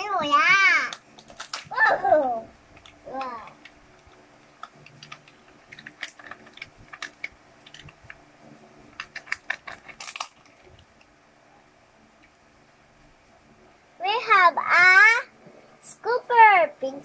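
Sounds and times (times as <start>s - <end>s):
plastic capsule clicking and cracking: 0.9s - 1.7s, 2.7s - 8.2s, 8.9s - 11.1s.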